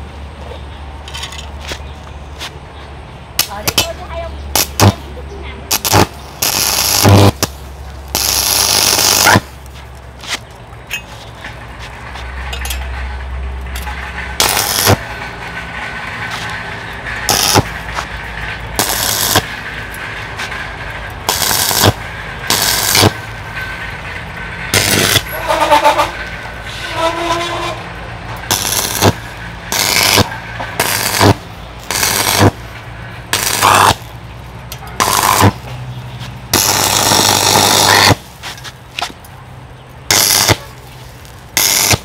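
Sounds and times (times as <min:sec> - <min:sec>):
welding arc crackling: 0:03.4 - 0:12.4, 0:13.5 - 0:42.0
welder humming: 0:04.5 - 0:05.0, 0:05.7 - 0:09.7, 0:14.4 - 0:15.1, 0:17.2 - 0:18.1, 0:18.8 - 0:19.7, 0:21.2 - 0:23.4, 0:24.7 - 0:26.0, 0:28.5 - 0:35.7, 0:36.5 - 0:38.3, 0:40.1 - 0:42.0.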